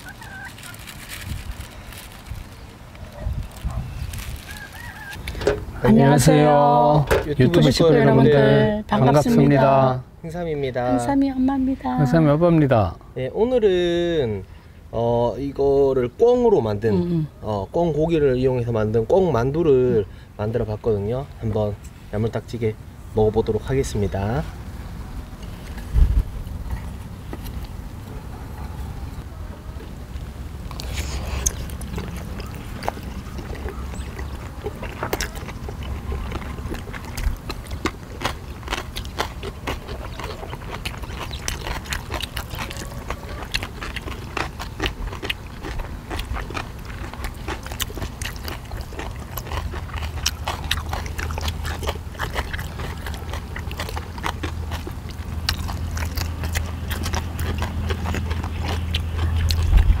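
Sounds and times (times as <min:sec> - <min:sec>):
people chewing: 0:00.0 - 0:09.9, 0:25.4 - 1:00.0
low steady rumble: 0:00.0 - 1:00.0.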